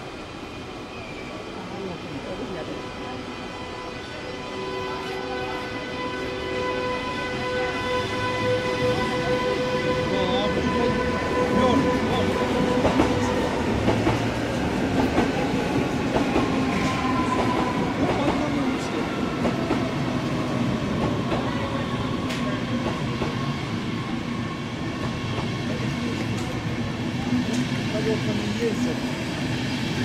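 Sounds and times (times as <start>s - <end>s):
train wheels clattering over rails: 11.8s - 23.9s.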